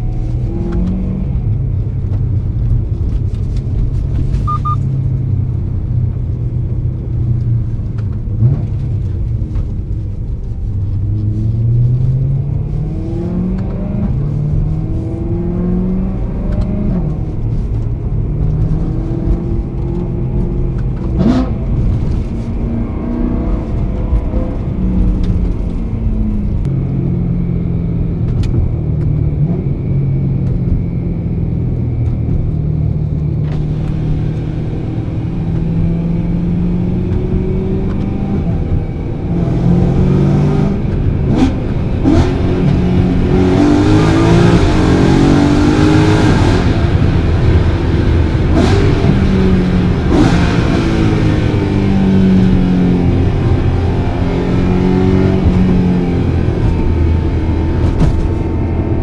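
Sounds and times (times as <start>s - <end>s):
car engine revving from cabin: 0.0s - 1.6s, 11.0s - 27.3s, 32.8s - 59.0s.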